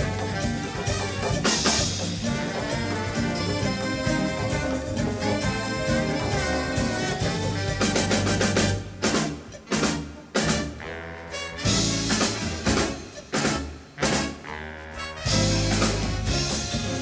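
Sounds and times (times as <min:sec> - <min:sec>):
big band playing jazz: 0:00.0 - 0:17.0
punched brass accents: 0:00.0 - 0:17.0.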